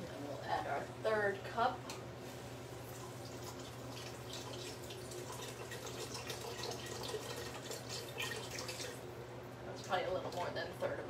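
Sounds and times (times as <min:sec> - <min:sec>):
small splashes and drips: 0:02.9 - 0:09.1
liquid pouring into pot: 0:02.9 - 0:09.2.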